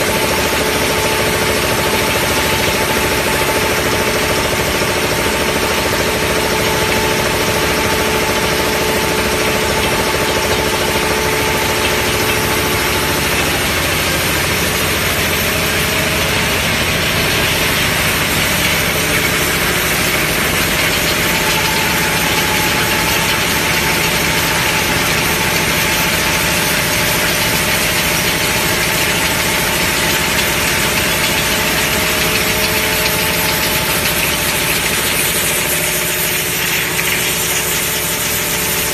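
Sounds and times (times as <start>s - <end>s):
machine clatter and hum: 0.0s - 38.9s
steady machine tones: 0.0s - 38.9s.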